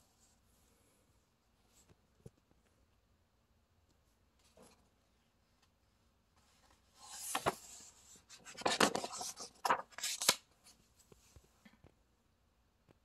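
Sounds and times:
paper page rustling: 0:07.0 - 0:10.5.

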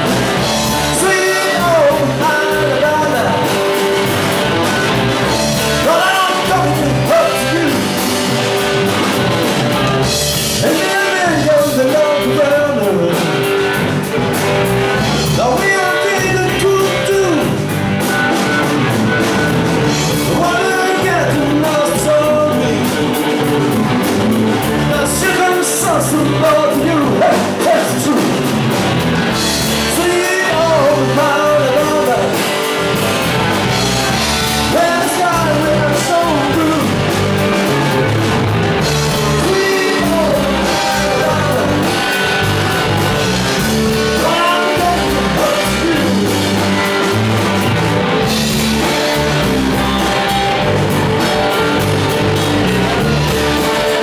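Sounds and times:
person singing: 0:00.0 - 0:05.0, 0:05.6 - 0:08.4, 0:10.0 - 0:13.8, 0:15.2 - 0:17.7, 0:19.8 - 0:23.8, 0:24.6 - 0:28.5, 0:29.3 - 0:32.9, 0:34.1 - 0:47.2
drum kit: 0:00.0 - 0:54.0
electric bass: 0:00.0 - 0:54.0
electric guitar: 0:00.0 - 0:54.0.

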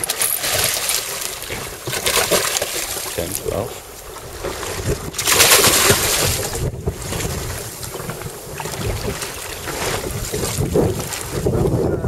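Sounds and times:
sea rushing against boat: 0:00.0 - 0:12.0
wind buffeting microphone: 0:02.9 - 0:12.0.

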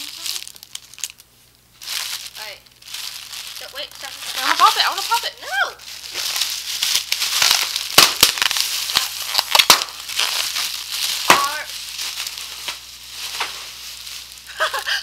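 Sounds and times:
plastic bubble wrap crinkling: 0:00.0 - 0:15.0
sharp snaps: 0:07.0 - 0:10.3.

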